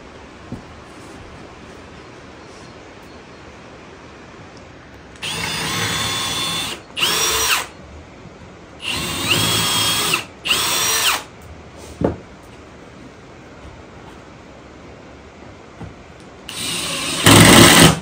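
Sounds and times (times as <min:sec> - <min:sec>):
cordless drill whining: 0:05.2 - 0:07.7, 0:08.8 - 0:11.3, 0:16.5 - 0:18.0.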